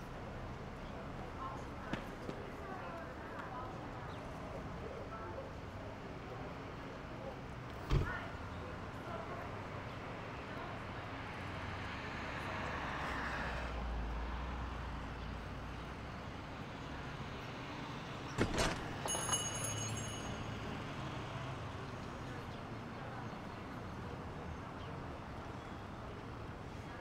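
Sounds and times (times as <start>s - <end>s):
high door jingle: 18.4s - 20.6s.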